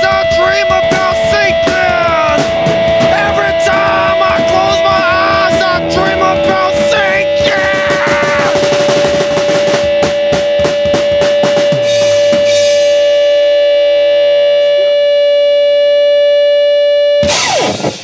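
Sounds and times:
drum kit hits: 0.0s - 13.3s
electric guitar ringing: 0.0s - 18.0s.

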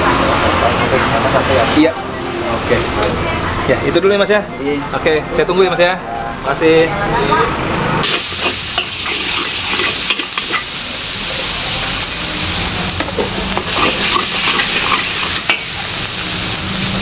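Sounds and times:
oil sizzling in a wok: 8.0s - 17.0s
metal spatula scraping pan: 8.8s - 10.7s, 13.6s - 15.7s
spatula clinking on metal: 8.8s - 10.7s, 13.5s - 15.7s.

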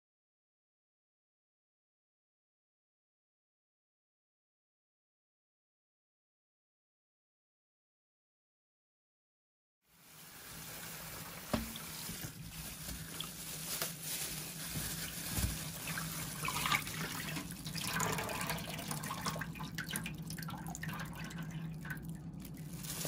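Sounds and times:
water splashing in a sink: 10.1s - 23.0s.

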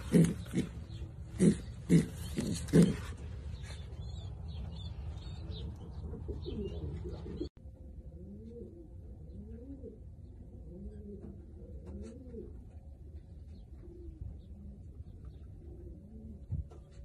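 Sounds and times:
pigeons cooing: 0.0s - 3.8s, 5.4s - 7.5s, 8.2s - 12.8s, 13.5s - 17.0s
low hum: 0.0s - 17.0s.

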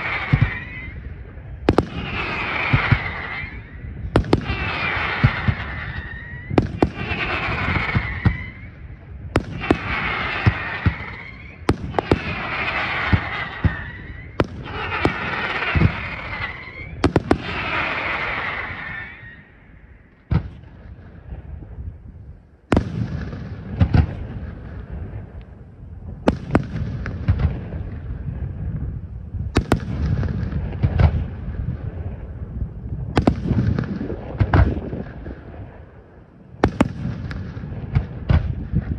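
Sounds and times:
hissing crackle of stars: 0.0s - 20.3s, 30.2s - 38.9s.

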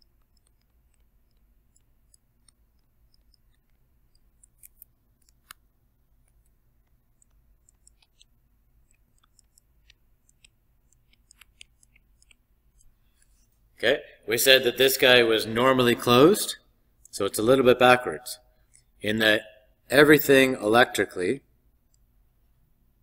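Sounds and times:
stylus scratching on a tablet: 0.0s - 5.6s, 6.2s - 13.6s.

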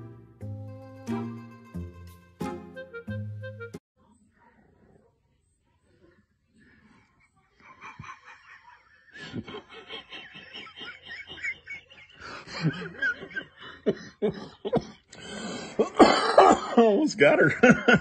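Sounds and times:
person snickering: 7.6s - 16.8s.

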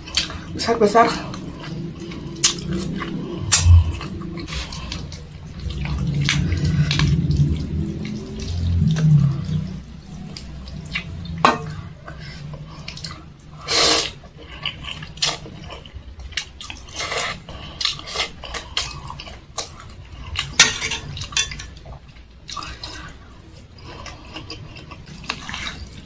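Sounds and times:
wet eating sounds: 0.0s - 26.0s
noodles being slurped: 1.2s - 20.6s.

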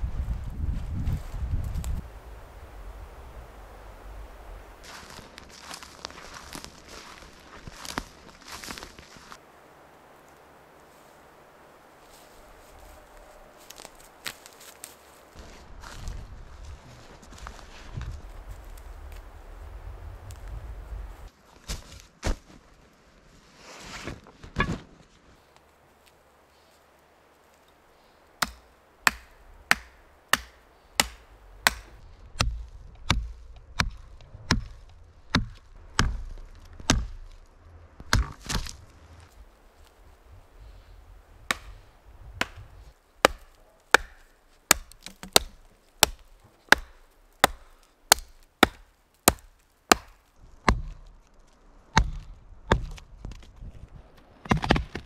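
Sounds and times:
rustle: 0.0s - 55.0s
hatchet chopping wood: 28.4s - 37.4s, 38.0s - 38.8s, 41.5s - 41.8s, 42.4s - 51.1s, 52.0s - 53.1s, 54.4s - 55.0s.

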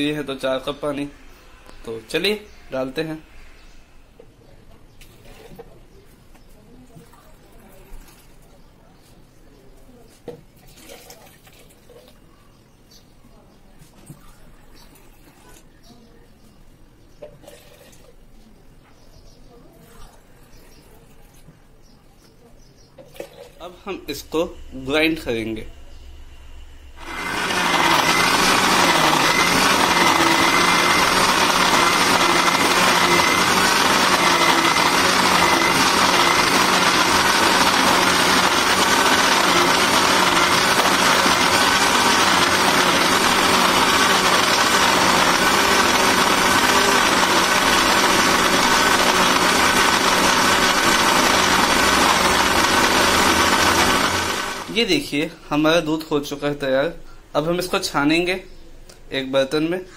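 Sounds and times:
mixer grinder running: 0.0s - 4.0s, 26.9s - 55.0s.

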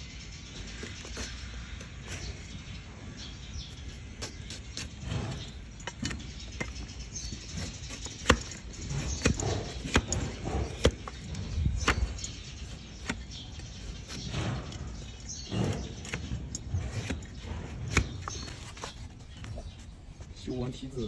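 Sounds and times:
blade scraping hoof: 3.8s - 19.9s.

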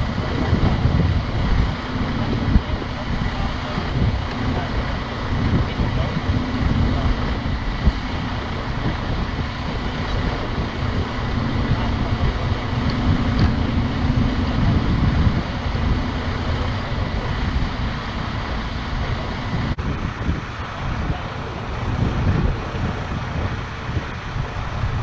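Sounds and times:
diesel truck engine running: 0.0s - 25.0s
wind noise on microphone: 0.0s - 25.0s.

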